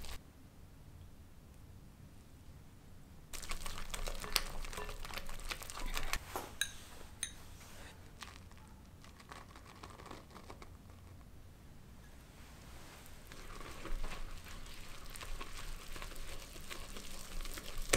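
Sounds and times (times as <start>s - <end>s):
whisk beating butter in glass bowl: 3.4s - 6.2s.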